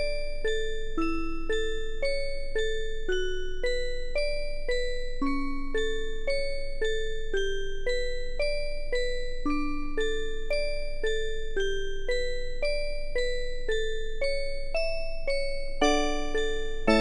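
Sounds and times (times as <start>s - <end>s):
tune of single ringing notes: 15.8s - 17.0s.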